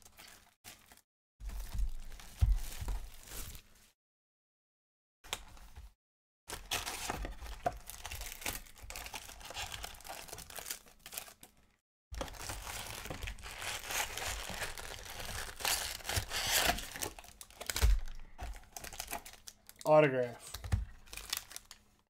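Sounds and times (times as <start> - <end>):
foil packs crinkling: 6.5 - 11.6, 12.2 - 21.9
cardboard box tearing: 12.3 - 17.8.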